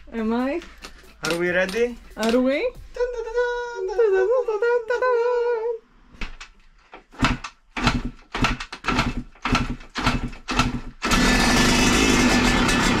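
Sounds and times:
dirt bike engine sputtering and running: 0:08.9 - 0:13.0.

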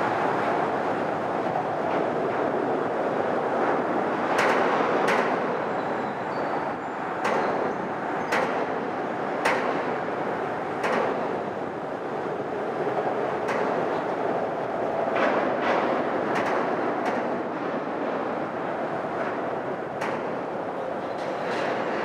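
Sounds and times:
traffic rumble on steel bridge: 0:00.0 - 0:22.0
vehicles thumping over bridge deck: 0:07.1 - 0:22.0.

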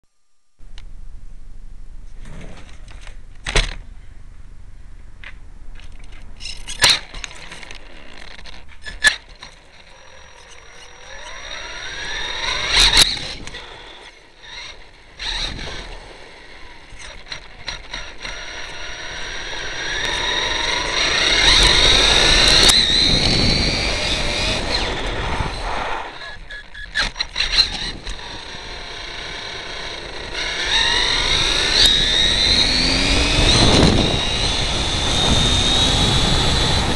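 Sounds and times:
electric motor whine: 0:06.8 - 0:36.9.

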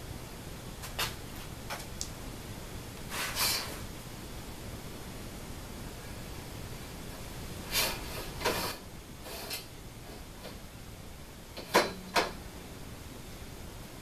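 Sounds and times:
metal rail sliding and scraping: 0:07.6 - 0:10.2.

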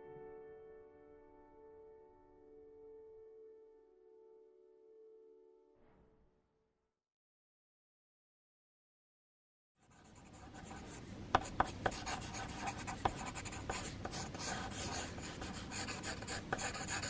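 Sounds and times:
pencil sketching on paper: 0:09.8 - 0:17.0
pencil lead ticking on paper: 0:09.9 - 0:17.0.

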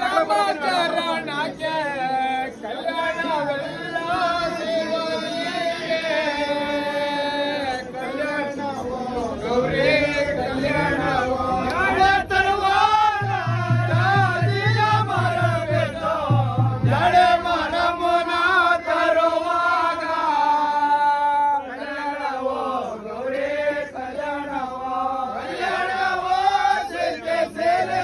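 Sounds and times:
voices singing devotional chant: 0:00.0 - 0:28.0
low pulsing beat: 0:11.9 - 0:18.4.

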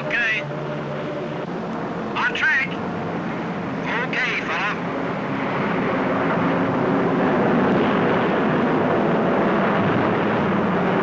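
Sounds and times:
propeller plane engines droning: 0:00.0 - 0:11.0.

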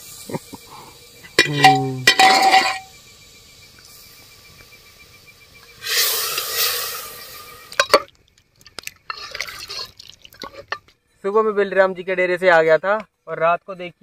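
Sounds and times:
hiss: 0:00.0 - 0:08.0
metal cookware clinking: 0:01.4 - 0:02.9, 0:07.8 - 0:08.1.

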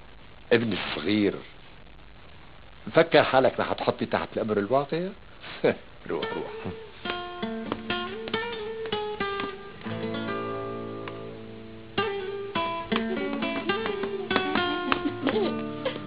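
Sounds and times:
acoustic guitar picking notes: 0:06.2 - 0:16.0.

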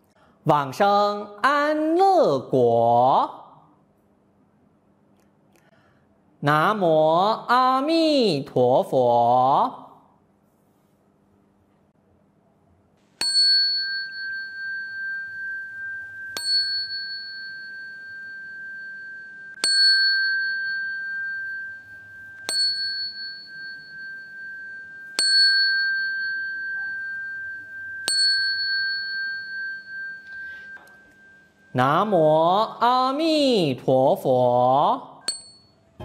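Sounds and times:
bowl bell ringing: 0:13.2 - 0:32.3, 0:35.3 - 0:36.0.

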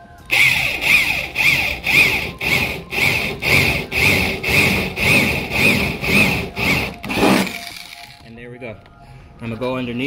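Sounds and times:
electric drill cutting sheet metal: 0:00.3 - 0:08.2.

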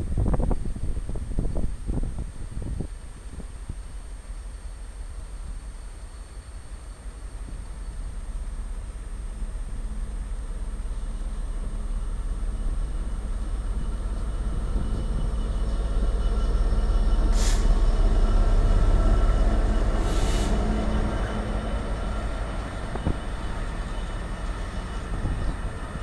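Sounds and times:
diesel locomotive engine drone: 0:00.0 - 0:26.0
brief air hisses: 0:17.3 - 0:17.8, 0:20.0 - 0:20.7.

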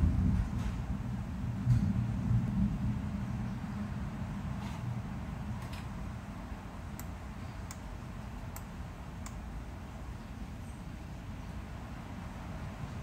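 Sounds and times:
computer mouse clicking: 0:06.9 - 0:09.4.

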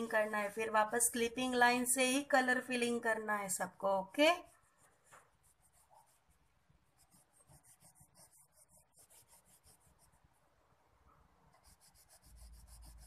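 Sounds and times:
crayon rubbing on paper: 0:04.2 - 0:10.3, 0:11.5 - 0:13.0.

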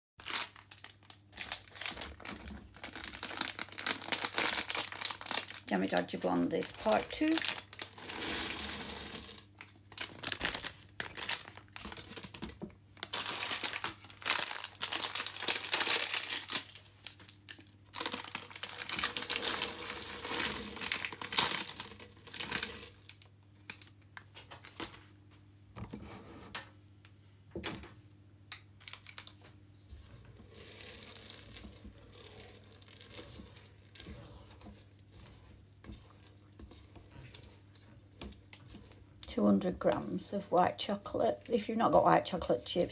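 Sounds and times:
plastic packet crinkling: 0:00.2 - 0:24.0, 0:28.5 - 0:29.5, 0:30.5 - 0:40.2
batter being stirred: 0:01.2 - 0:15.8, 0:29.3 - 0:42.9.

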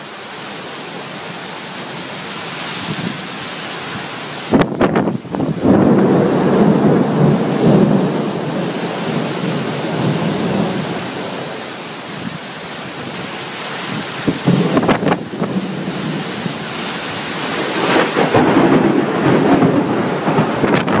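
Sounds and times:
steady rain: 0:00.0 - 0:21.0
thunder rumbling: 0:04.4 - 0:13.2, 0:13.9 - 0:21.0
thunder crackles: 0:04.5 - 0:11.6, 0:14.2 - 0:21.0.

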